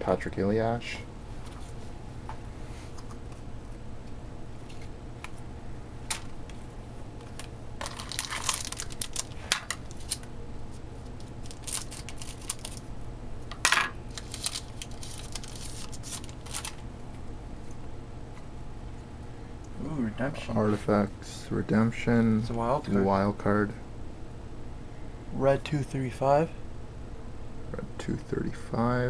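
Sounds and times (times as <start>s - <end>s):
steady low hum: 0.0s - 29.0s
cards being flipped: 14.1s - 16.8s.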